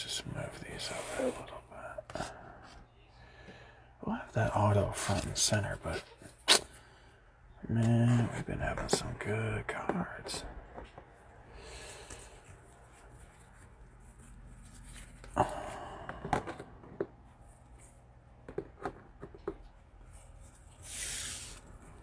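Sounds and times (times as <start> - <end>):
soft rustle: 11.9 - 15.4.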